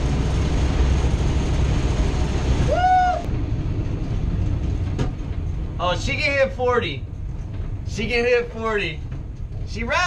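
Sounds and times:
vehicle wind and road rumble: 0.0s - 10.0s
person whooping: 2.7s - 3.3s.

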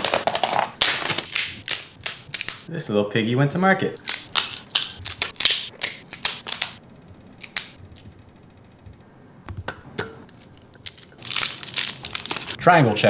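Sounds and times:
crab shell cracking: 0.0s - 2.7s, 4.0s - 6.8s, 7.4s - 8.0s, 9.7s - 12.6s.

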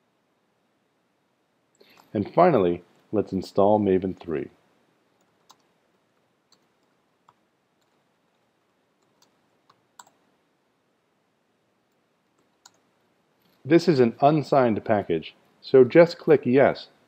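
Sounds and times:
keyboard keystroke clicks: 9.0s - 10.2s.

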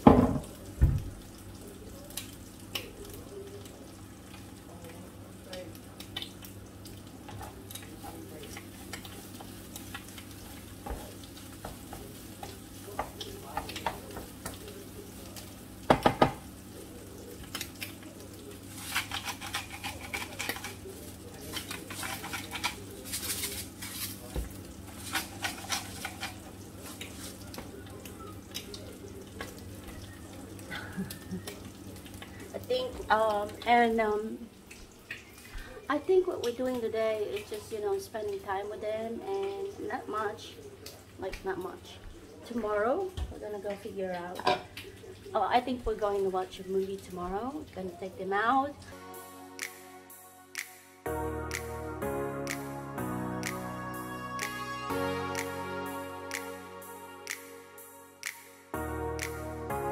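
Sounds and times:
knock on a pan: 0.0s - 1.1s, 15.9s - 16.4s
rice sizzling in a frying pan: 0.0s - 50.7s
utensil scraping a pan: 18.7s - 24.3s, 24.9s - 26.5s.

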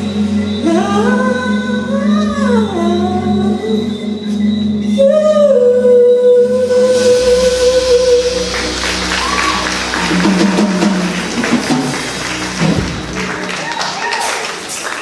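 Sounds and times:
live band playing: 0.0s - 15.0s
audience clapping and cheering: 8.4s - 15.0s.

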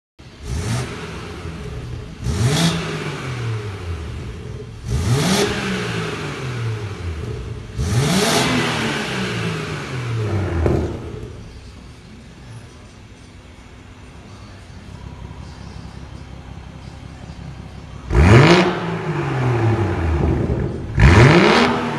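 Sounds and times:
car engine revving: 0.2s - 11.8s, 17.9s - 21.9s
car engine idling: 0.2s - 21.9s
exhaust pop: 10.3s - 11.4s.

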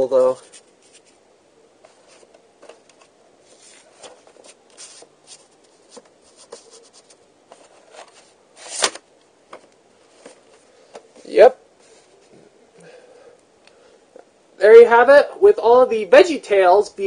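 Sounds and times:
paper rustling: 0.2s - 1.2s, 1.8s - 12.2s.

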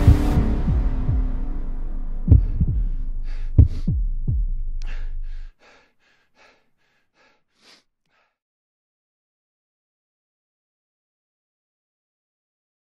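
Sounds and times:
deep booms dropping in pitch: 0.0s - 5.5s
low drone: 0.0s - 5.5s.

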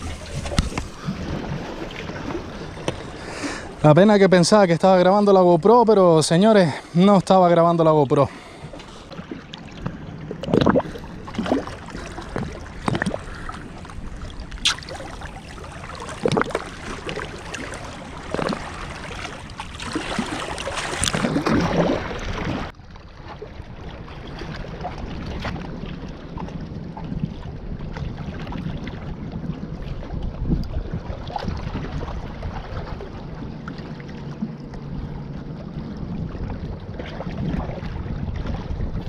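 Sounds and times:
wind on microphone: 0.0s - 4.0s, 23.4s - 39.0s
surf washing: 0.0s - 22.7s
seawater sloshing and splashing: 0.0s - 39.0s.

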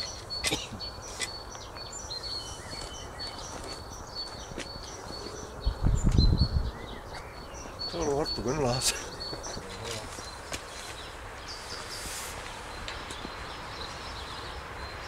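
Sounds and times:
small birds chirping: 0.0s - 15.0s
low rumble on microphone: 5.6s - 7.1s.

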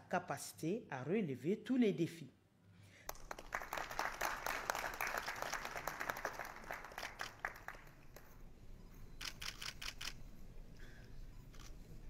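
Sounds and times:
guests applauding: 3.1s - 8.2s
camera shutter clicks: 9.2s - 10.2s.

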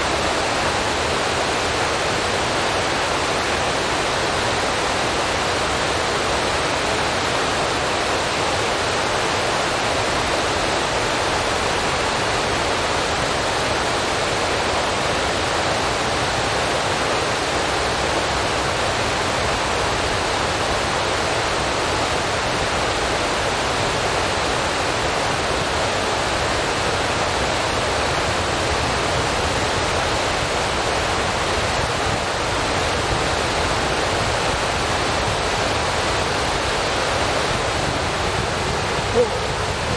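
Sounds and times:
steady rushing hiss: 15.6s - 39.9s.

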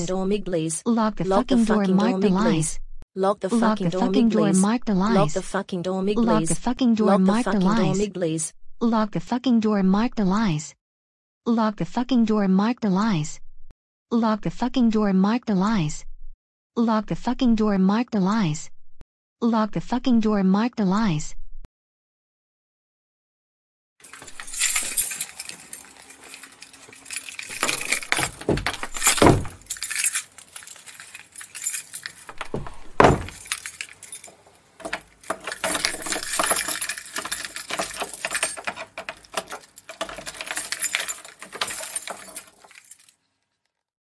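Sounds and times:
keys jangling: 24.0s - 43.2s
lock clacking: 24.1s - 43.1s.

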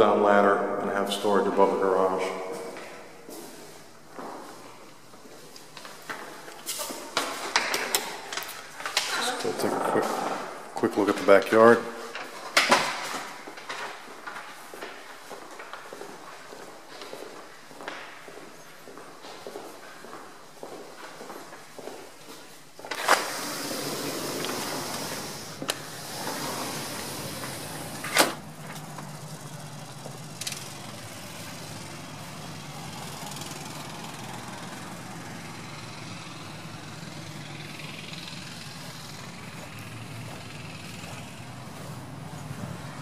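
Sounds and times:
sliding glass door clacking: 22.9s - 28.9s
door panel rolling in track: 22.9s - 29.2s
low outdoor hum: 23.9s - 43.0s.

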